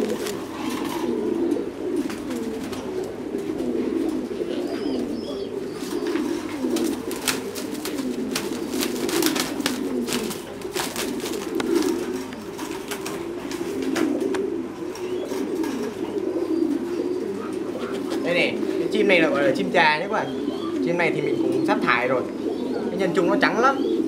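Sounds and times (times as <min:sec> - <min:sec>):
pigeons cooing: 0:00.0 - 0:24.0
wire cages rattling: 0:05.8 - 0:14.4.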